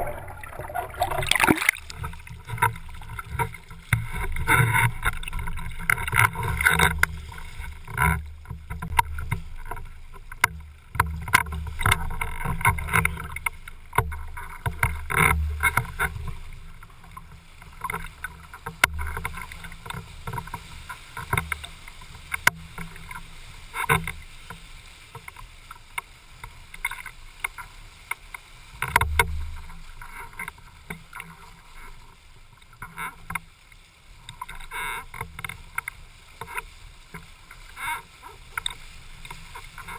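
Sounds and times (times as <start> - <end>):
low rumble: 0.0 - 2.3
water splashing and rushing: 0.0 - 39.9.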